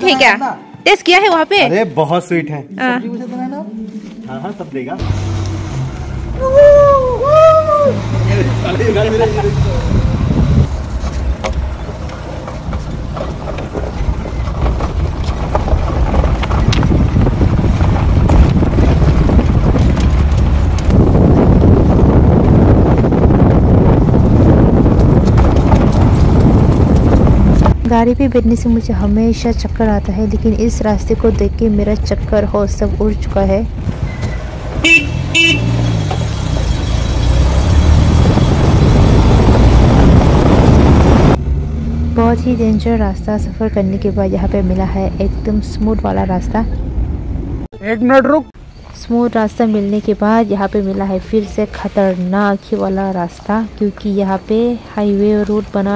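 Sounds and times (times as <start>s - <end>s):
vehicle rumbling on rough road: 4.2s - 55.9s
knocks and rattles: 11.0s - 27.8s
vehicle horn toots: 34.8s - 36.0s.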